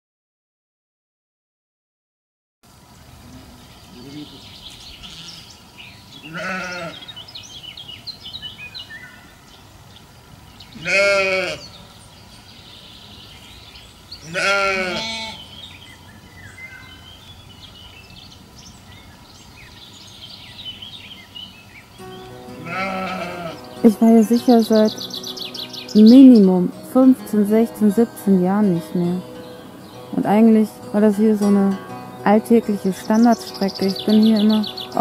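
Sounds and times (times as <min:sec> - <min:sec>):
sheep bleating: 0:05.0 - 0:05.5, 0:06.2 - 0:07.1, 0:10.8 - 0:11.7, 0:14.2 - 0:15.5, 0:22.4 - 0:24.9.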